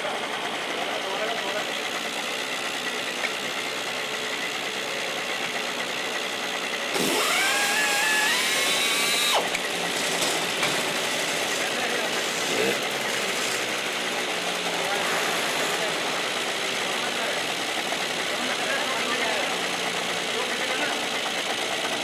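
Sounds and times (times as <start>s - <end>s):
motor-driven tool whine: 5.4s - 16.8s.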